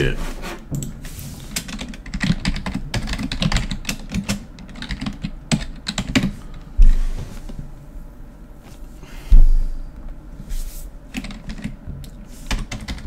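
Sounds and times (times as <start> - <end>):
heavy low thump: 9.3 - 9.8.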